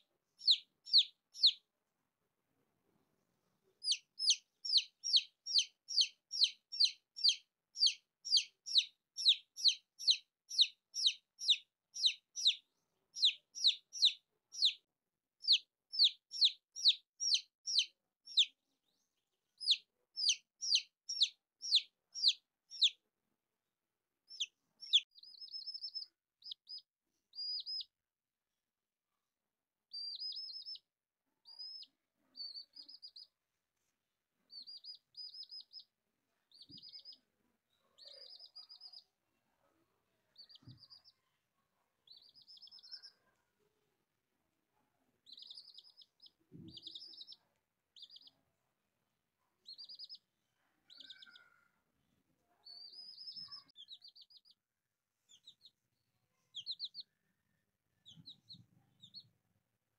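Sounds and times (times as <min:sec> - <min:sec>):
chicks peeping: 0:00.0 - 0:01.6, 0:03.7 - 0:14.8, 0:15.4 - 0:23.0, 0:24.3 - 0:27.9, 0:29.9 - 0:33.3, 0:34.5 - 0:35.9, 0:36.5 - 0:37.2, 0:37.8 - 0:39.1, 0:40.4 - 0:41.2, 0:42.0 - 0:43.2, 0:45.2 - 0:48.4, 0:49.6 - 0:54.6, 0:55.2 - 0:55.8, 0:56.4 - 0:57.3, 0:57.9 - 0:59.4.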